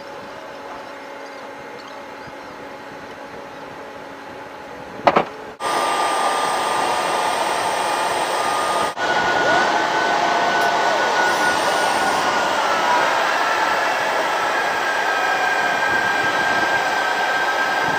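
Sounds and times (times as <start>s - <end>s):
machinery whine and rush: 0.0s - 17.9s.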